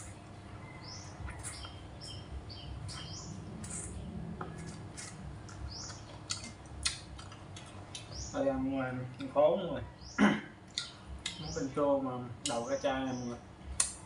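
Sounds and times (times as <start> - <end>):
person chewing food: 1.1 - 8.2
lip smacks: 2.9 - 8.1.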